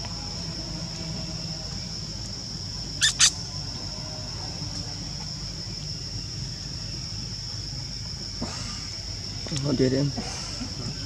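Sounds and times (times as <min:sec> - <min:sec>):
insect drone: 0:00.0 - 0:11.0
sharp high-pitched animal calls: 0:03.0 - 0:03.4.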